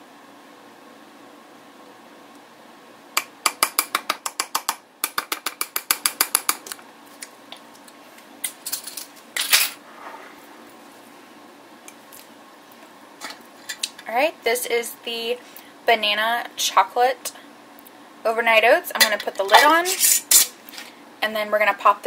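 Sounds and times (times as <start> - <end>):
short scrape: 9.8 - 10.6, 19.9 - 20.9.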